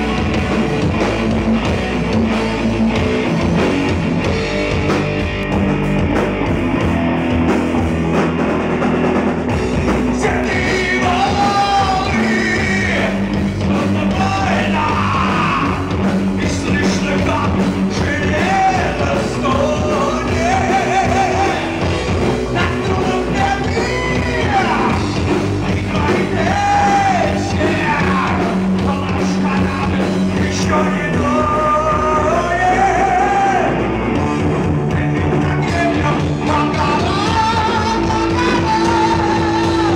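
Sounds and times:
bass guitar: 0:00.0 - 0:39.9
drum kit: 0:00.0 - 0:39.9
electric guitar: 0:00.0 - 0:39.9
man singing: 0:10.0 - 0:33.9, 0:34.8 - 0:39.9.

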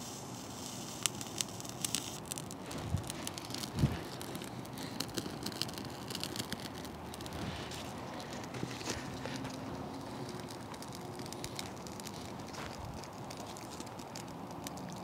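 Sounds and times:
birch bark crackling and popping: 0:00.0 - 0:15.0
dull low bumps: 0:02.7 - 0:04.4.

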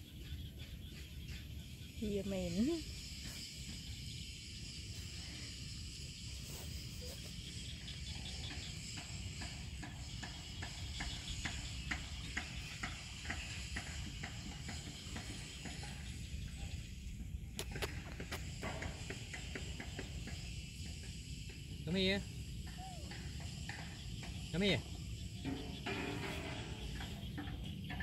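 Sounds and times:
high insect hiss: 0:00.0 - 0:28.0.

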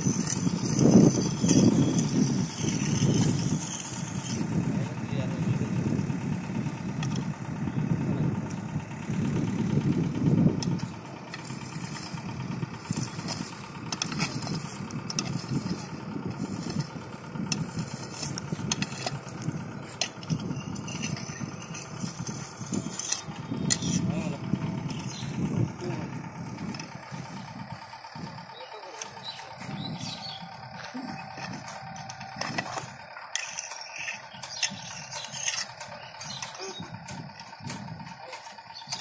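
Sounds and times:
metal pipe scraping rail: 0:00.0 - 0:04.6, 0:10.6 - 0:25.3, 0:28.9 - 0:39.0
low uneven rumble: 0:00.0 - 0:39.0.

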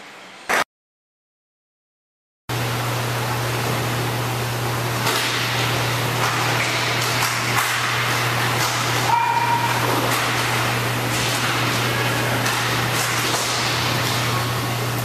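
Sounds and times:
hall hiss and hum: 0:02.5 - 0:15.0
sticks and puck clacking: 0:06.2 - 0:14.3.

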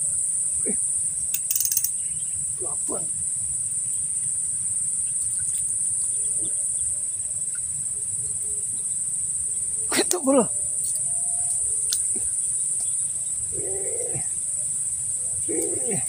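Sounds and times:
crickets chirping: 0:00.0 - 0:16.0
short faint calls: 0:13.5 - 0:14.4.

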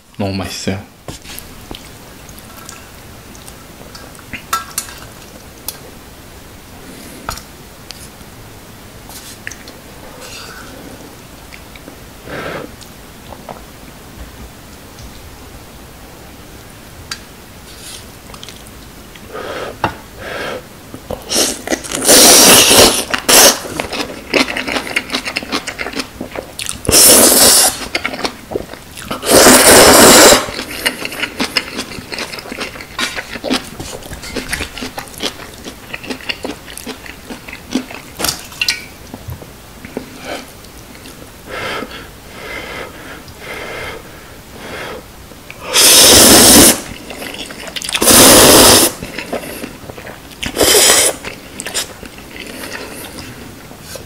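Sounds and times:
slurping noodles: 0:21.2 - 0:26.0, 0:26.8 - 0:28.4, 0:29.0 - 0:36.4, 0:45.6 - 0:53.4.

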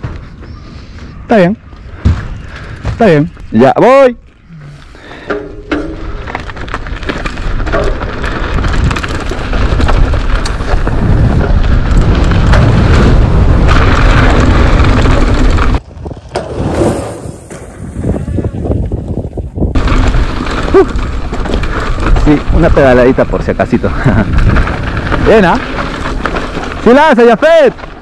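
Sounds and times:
tyres on dirt trail: 0:00.0 - 0:28.0
bike rattling: 0:01.7 - 0:28.0
wind buffeting microphone: 0:06.1 - 0:26.8.

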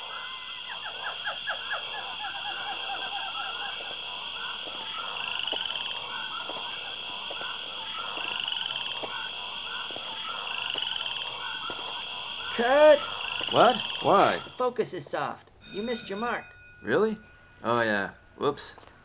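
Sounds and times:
frogs croaking and chirping: 0:00.0 - 0:19.0
high-pitched drone: 0:01.0 - 0:14.6.

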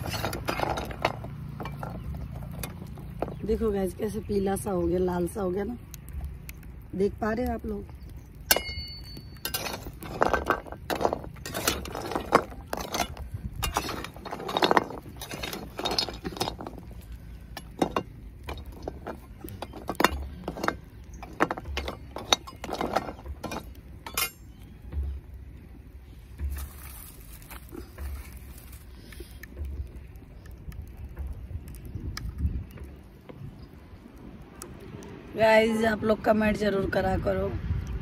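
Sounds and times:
metal spatula scraping pan: 0:09.4 - 0:16.7.

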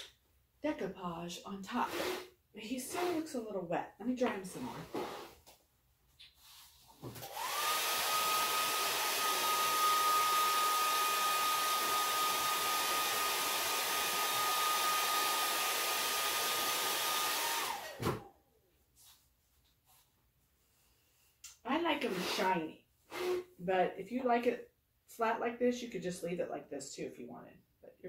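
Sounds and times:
hair dryer running: 0:07.2 - 0:18.3, 0:23.1 - 0:23.4
motor spinning down: 0:07.3 - 0:18.0.

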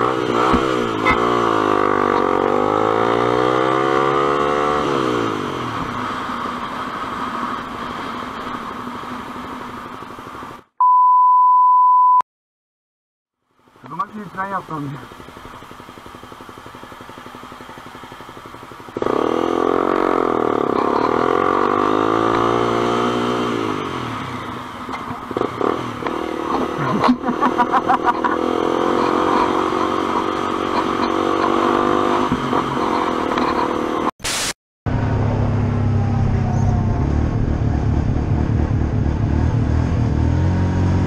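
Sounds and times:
motorcycle engine accelerating: 0:00.0 - 0:10.3, 0:13.6 - 0:34.1, 0:34.9 - 0:41.0
motorcycle throttle blips: 0:00.4 - 0:02.3.

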